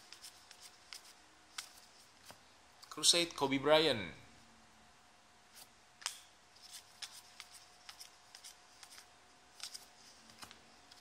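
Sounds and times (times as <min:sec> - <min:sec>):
trading cards sliding and snapping: 0:00.0 - 0:02.4, 0:05.6 - 0:11.0.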